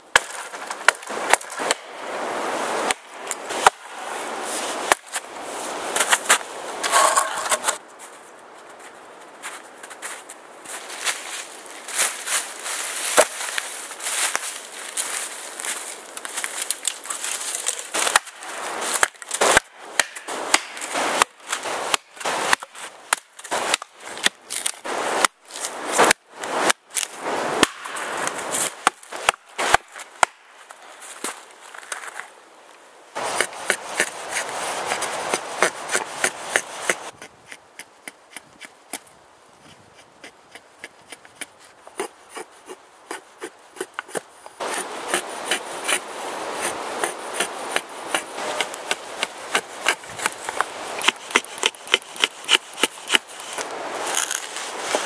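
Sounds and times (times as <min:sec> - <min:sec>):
axe scraping wood: 0:05.9 - 0:07.8, 0:33.2 - 0:55.0
dry branches snapping: 0:11.1 - 0:24.9, 0:47.6 - 0:55.0
axe striking wood: 0:19.0 - 0:21.3.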